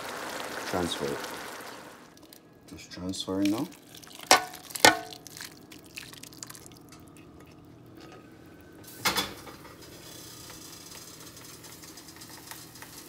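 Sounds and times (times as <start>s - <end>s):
sauce bubbling and crackling: 0.0s - 2.6s, 3.3s - 8.9s, 9.7s - 13.0s
sauce dripping into pan: 1.6s - 2.5s, 3.4s - 8.0s
pot clanking: 4.1s - 5.4s.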